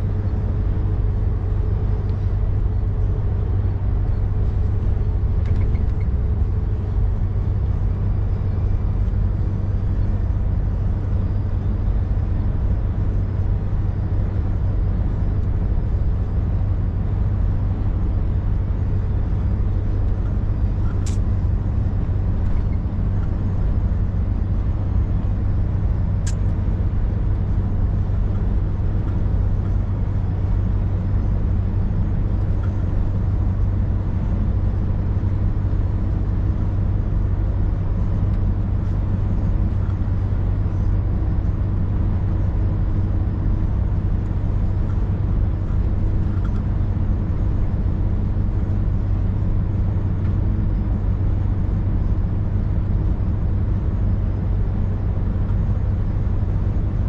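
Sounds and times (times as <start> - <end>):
road noise: 0.0 - 57.0
truck diesel engine drone: 0.0 - 57.0.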